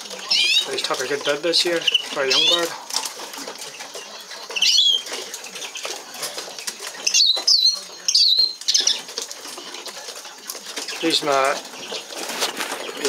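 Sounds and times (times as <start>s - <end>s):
wings rattling against cage bars: 0.0s - 13.0s.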